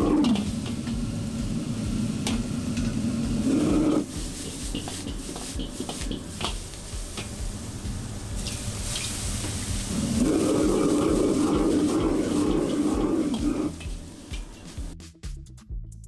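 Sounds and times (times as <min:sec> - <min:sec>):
food sizzling: 0:00.0 - 0:15.0
gas burner roaring: 0:00.0 - 0:15.0
ladle scraping a wok: 0:03.3 - 0:07.3, 0:08.4 - 0:14.8.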